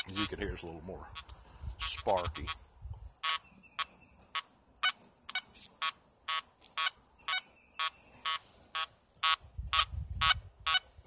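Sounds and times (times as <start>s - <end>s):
metal detector beeps: 0.0s - 0.2s, 3.2s - 10.8s.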